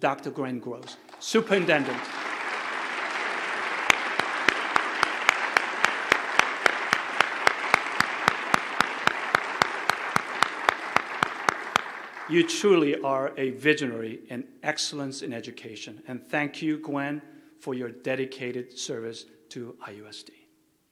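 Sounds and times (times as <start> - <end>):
one person clapping sharply: 0.8 - 12.3
audience applauding: 0.8 - 12.9.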